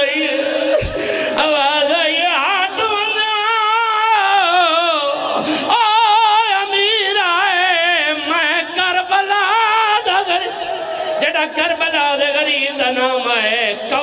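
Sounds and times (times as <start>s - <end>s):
man chanting through microphone: 0.0s - 14.0s.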